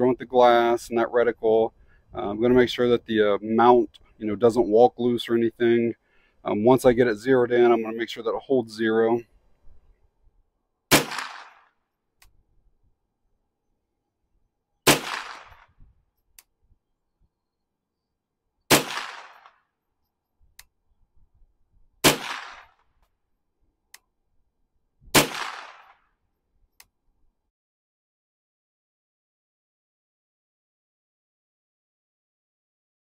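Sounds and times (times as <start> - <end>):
rifle shots echoing: 10.9 - 11.7, 14.8 - 15.7, 18.7 - 19.6, 22.0 - 22.8, 25.1 - 26.0.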